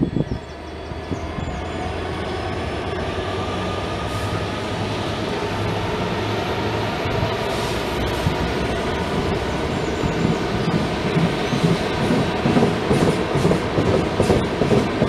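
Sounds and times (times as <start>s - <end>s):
diesel locomotives droning: 0.0s - 15.0s
wagons rolling on rails: 8.2s - 15.0s.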